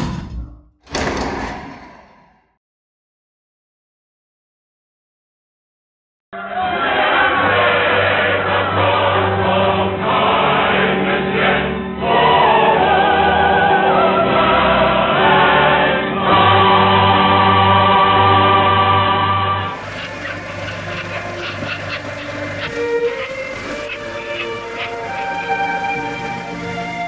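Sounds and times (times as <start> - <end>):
choir singing held notes: 6.4 - 27.0.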